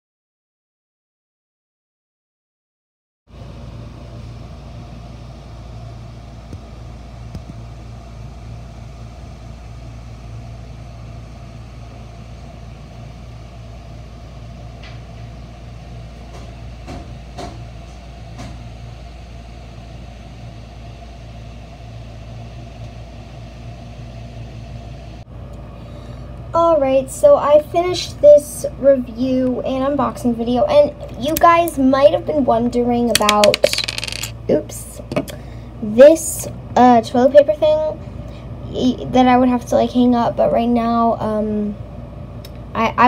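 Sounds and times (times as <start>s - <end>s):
low machine hum: 3.3s - 43.0s.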